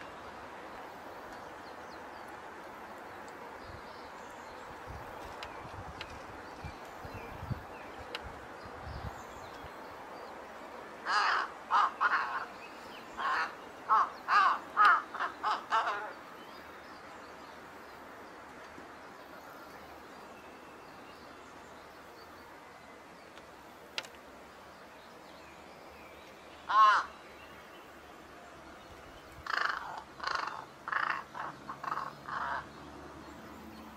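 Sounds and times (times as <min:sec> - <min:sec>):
faint background hiss: 0:00.0 - 0:33.9.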